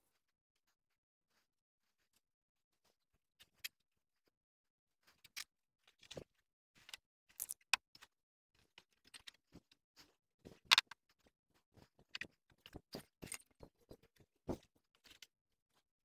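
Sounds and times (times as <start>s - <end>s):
plastic cord clicking and rattling: 5.1s - 15.3s.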